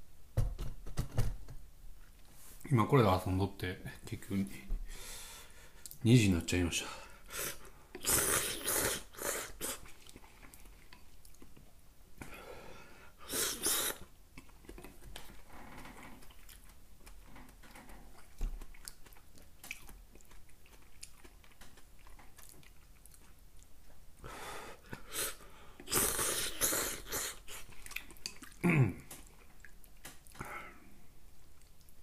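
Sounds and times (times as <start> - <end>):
man slurping noodles: 7.3 - 9.9, 13.2 - 14.1, 25.0 - 27.7
chewing with mouth clicks: 9.6 - 11.8, 13.5 - 24.0, 25.8 - 30.4, 31.3 - 32.0.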